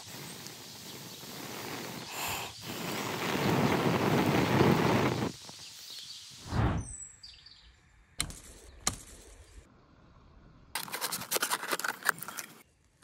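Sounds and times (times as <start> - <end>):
fire crackling and hissing: 0.0 - 7.0.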